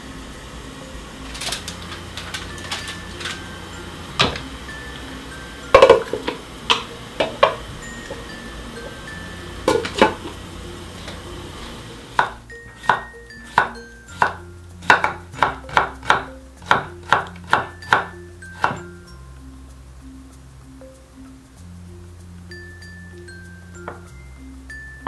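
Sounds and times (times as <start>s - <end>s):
light background music: 0.0s - 25.0s
glass pot lid clinking: 2.0s - 11.3s
knife chopping on wooden board: 13.6s - 18.8s.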